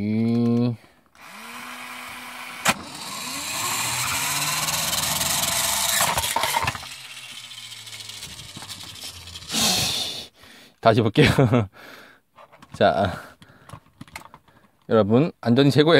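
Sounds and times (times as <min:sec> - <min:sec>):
toy launcher motor whirring: 0:01.2 - 0:10.3
toy clattering: 0:02.9 - 0:09.8.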